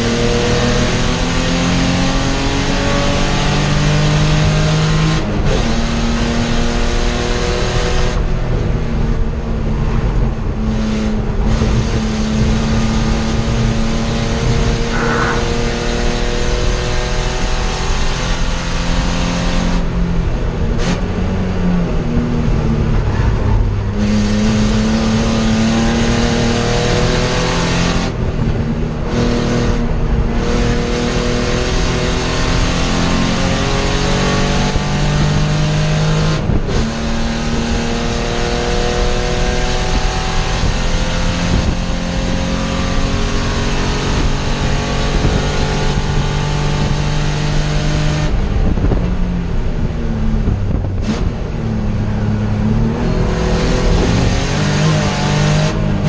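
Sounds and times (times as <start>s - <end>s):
racing car engine at full throttle: 0.0s - 56.0s.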